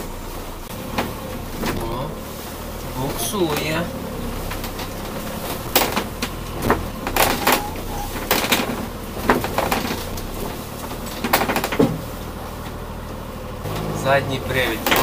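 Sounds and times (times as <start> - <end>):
low engine hum: 0.0 - 15.0
van body rattling and clunking: 0.0 - 15.0.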